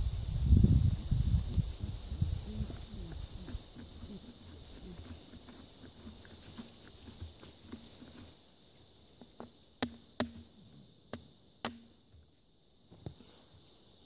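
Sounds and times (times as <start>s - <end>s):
knife shaving dry wood: 2.6s - 8.4s.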